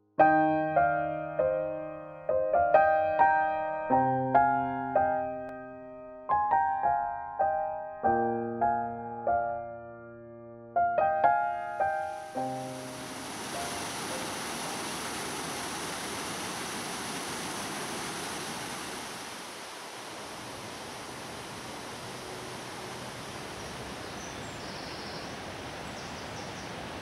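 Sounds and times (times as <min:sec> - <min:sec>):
piano music: 0:00.0 - 0:14.3
waterfall rushing: 0:11.7 - 0:24.1.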